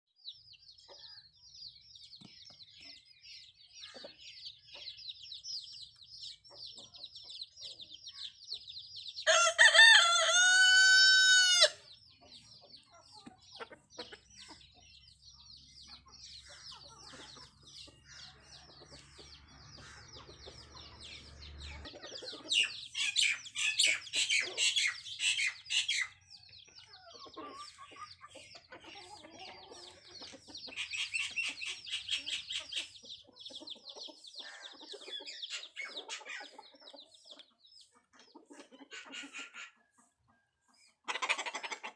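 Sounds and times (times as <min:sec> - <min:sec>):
rooster crowing: 0:09.3 - 0:11.8.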